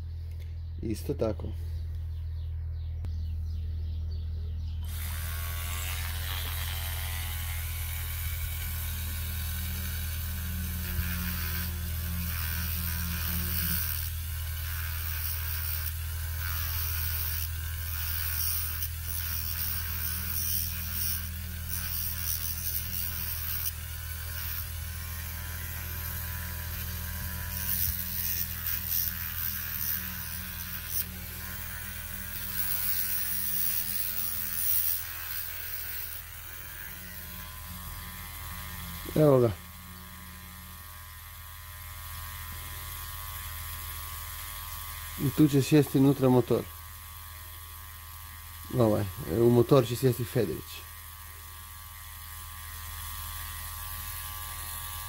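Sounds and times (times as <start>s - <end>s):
rotary tool motor whine: 4.8s - 55.0s
grinding hiss: 4.9s - 46.9s.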